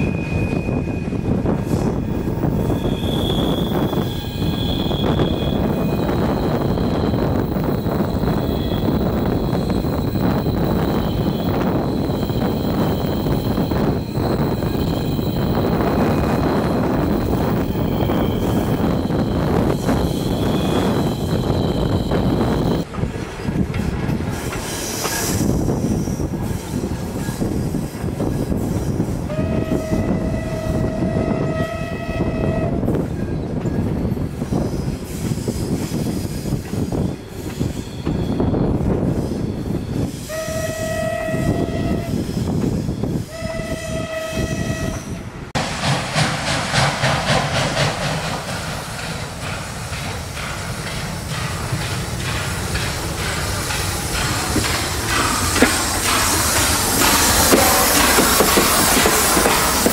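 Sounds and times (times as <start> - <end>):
train carriages clickety-clack: 0.0 - 59.9
steam locomotive whistle: 2.6 - 17.0, 29.3 - 32.9, 40.2 - 42.3, 43.3 - 45.2
steam hiss: 45.6 - 59.9.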